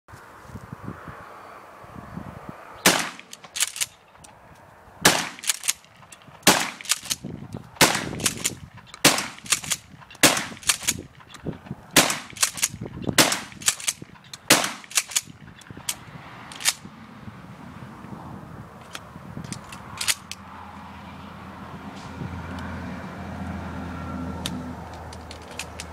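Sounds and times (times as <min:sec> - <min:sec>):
shotgun shots: 0:02.8 - 0:03.9, 0:05.0 - 0:05.8, 0:06.4 - 0:07.2, 0:07.8 - 0:11.0, 0:12.0 - 0:15.3
shotgun fore-end racking: 0:02.9 - 0:04.4, 0:05.1 - 0:16.8, 0:18.8 - 0:20.4, 0:24.4 - 0:25.9.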